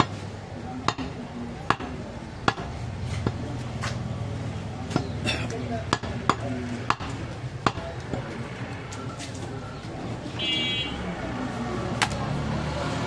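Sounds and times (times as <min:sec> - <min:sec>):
traffic hum: 0:00.0 - 0:13.0
voices: 0:00.0 - 0:13.0
cleaver knocking on wooden block: 0:00.9 - 0:03.4, 0:05.9 - 0:08.2.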